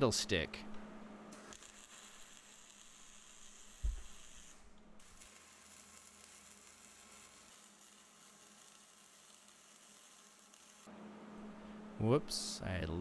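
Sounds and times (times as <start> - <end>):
welding arc sizzling: 1.3 - 10.9
dull thump: 3.8 - 4.1.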